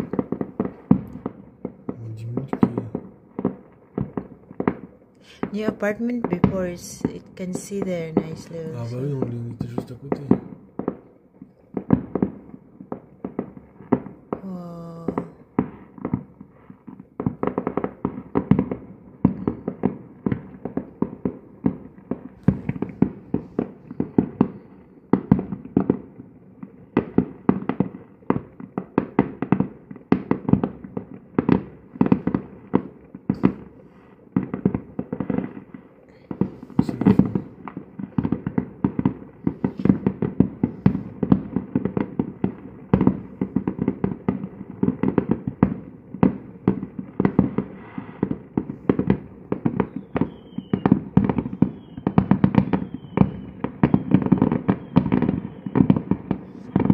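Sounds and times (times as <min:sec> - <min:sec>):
fireworks bangs and crackles: 0:00.0 - 0:56.9.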